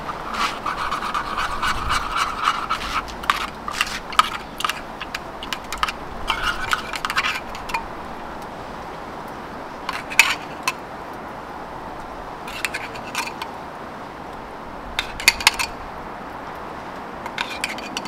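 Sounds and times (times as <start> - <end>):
metal utensils clinking and scraping: 0.0 - 7.9, 9.9 - 10.8, 12.5 - 13.5, 15.0 - 15.8, 17.2 - 18.0
steady hiss: 0.0 - 18.0.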